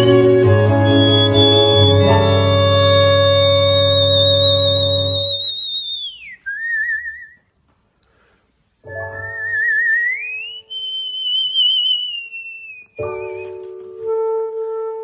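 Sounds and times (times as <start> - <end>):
clarinet holding low note: 0.0 - 5.5
man whistling a melody: 0.0 - 7.5, 9.0 - 13.8.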